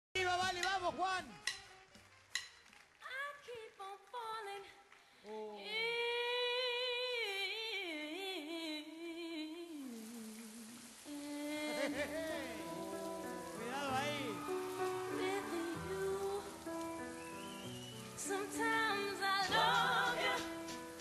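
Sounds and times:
person singing solo: 0:11.1 - 0:16.8.

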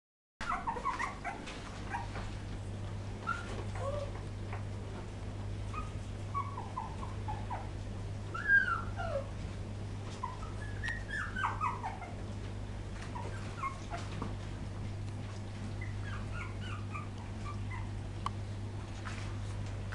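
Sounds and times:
puppies whimpering and squeaking: 0:00.4 - 0:02.4, 0:03.2 - 0:04.8, 0:05.6 - 0:09.4, 0:10.0 - 0:14.3, 0:15.2 - 0:18.1
steady low hum: 0:00.4 - 0:19.9.

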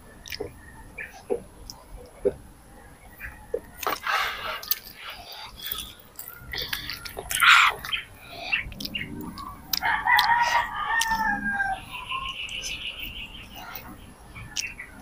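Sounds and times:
rooster crowing: 0:09.8 - 0:12.1.

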